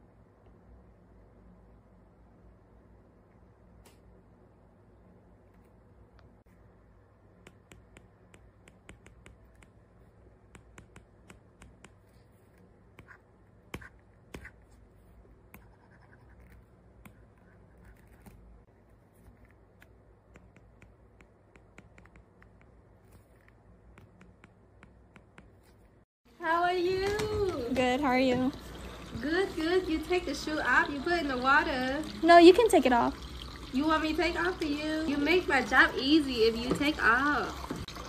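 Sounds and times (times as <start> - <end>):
stylus tapping on glass screen: 7.4 - 9.7.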